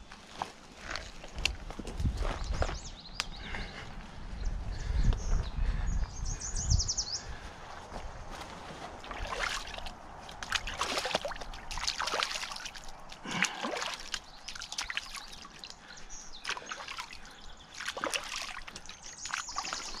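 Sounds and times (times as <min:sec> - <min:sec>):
creek water splashing: 0:08.4 - 0:20.0.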